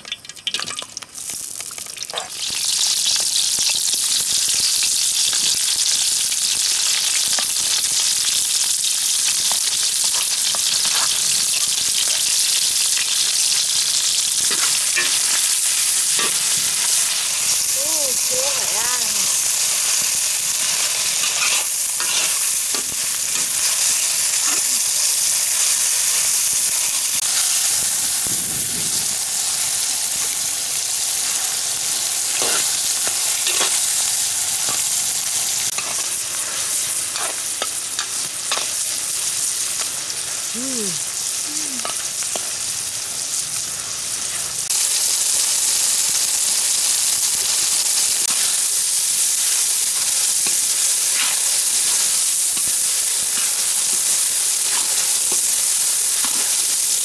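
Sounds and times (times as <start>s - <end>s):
vegetables sizzling in oil: 0.0s - 57.0s
metal ladle scraping a pan: 9.5s - 11.3s, 14.4s - 17.1s, 20.6s - 23.5s, 32.3s - 32.8s, 33.4s - 33.9s.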